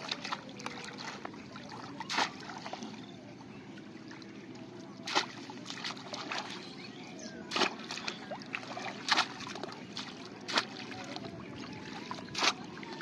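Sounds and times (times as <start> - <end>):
fish trap splashing into water: 2.0 - 2.6, 5.0 - 6.5, 7.5 - 10.9, 12.3 - 12.9.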